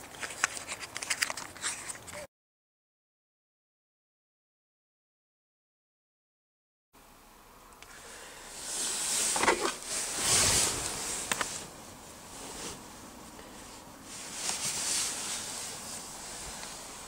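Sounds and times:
rustling handling noise: 0.0s - 2.3s, 8.6s - 17.0s.

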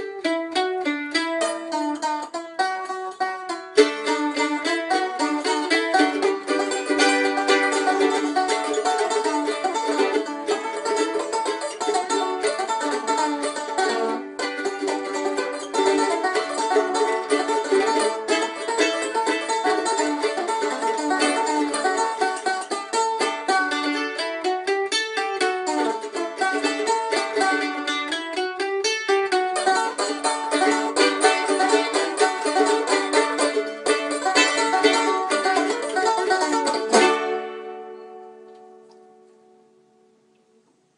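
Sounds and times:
banjo playing fast tune: 0.0s - 39.4s.

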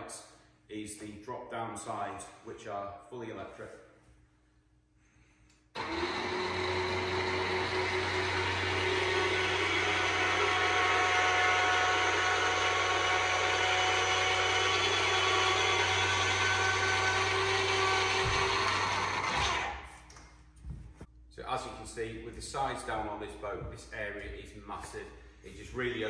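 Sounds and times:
electric motor whine: 5.8s - 19.7s.

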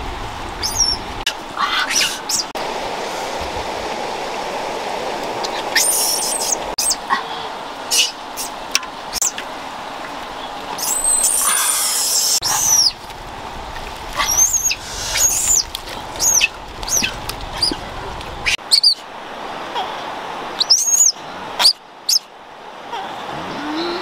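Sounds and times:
high-pitched chirping calls: 10.8s - 13.0s.

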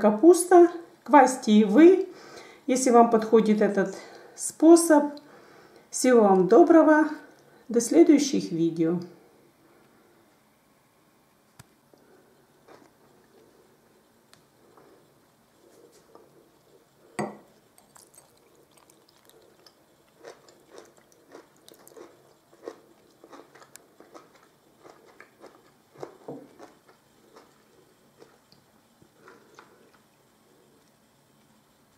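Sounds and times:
crunching and clicking: 17.9s - 27.6s.

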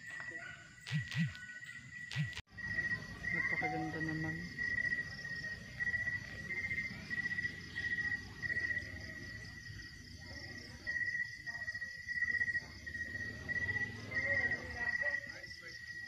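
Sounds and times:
insects pulsed chirps: 0.0s - 16.0s
insects trilling: 0.0s - 16.0s.

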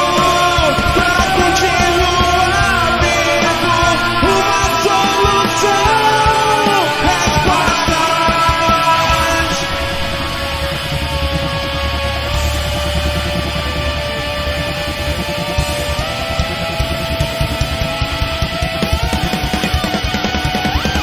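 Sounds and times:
person singing: 0.0s - 11.6s
drums: 0.0s - 21.0s
electric guitars: 0.0s - 21.0s.

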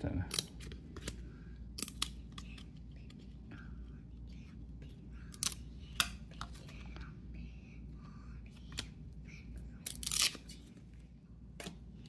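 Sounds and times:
cards snapping: 0.3s - 2.7s
trading cards rustling: 0.3s - 3.4s.

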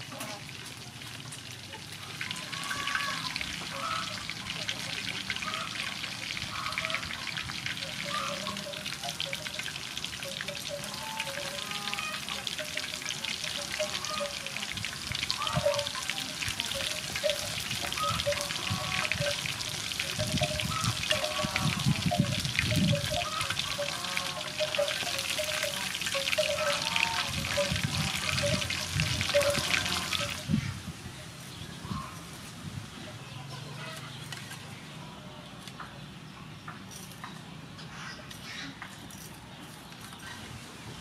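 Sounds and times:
chicken deep-frying sizzle: 0.0s - 30.7s.

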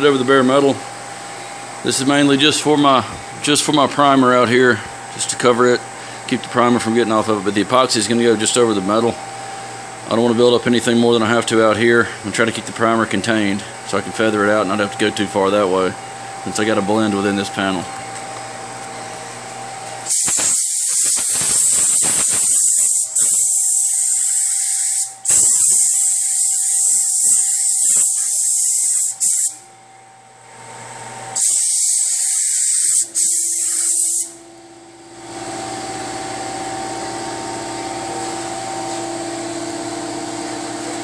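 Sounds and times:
steady background hum: 0.0s - 41.0s
spray gun hissing: 20.1s - 29.6s, 31.4s - 34.4s.

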